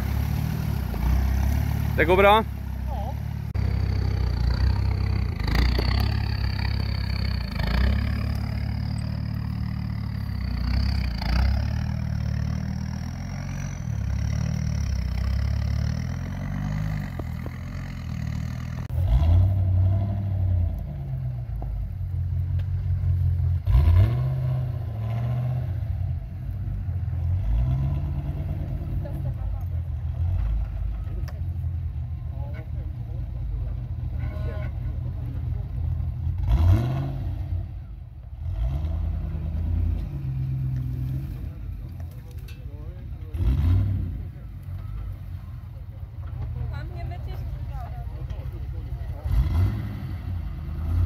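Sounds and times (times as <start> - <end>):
diesel engine pulling over rough ground: 0.0 - 51.0.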